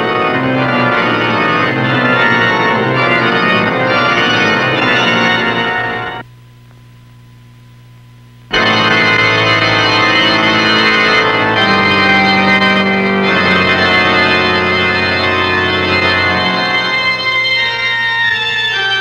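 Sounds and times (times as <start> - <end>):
sustained organ chords: 0.0 - 6.3, 8.5 - 19.0
faint low hum: 6.2 - 8.6.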